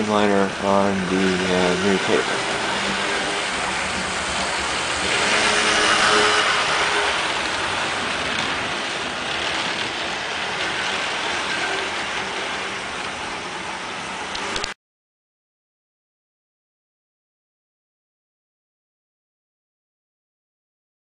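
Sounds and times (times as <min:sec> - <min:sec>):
model train wheels on rails: 0:00.0 - 0:14.8
model train motor whirring: 0:00.1 - 0:14.7.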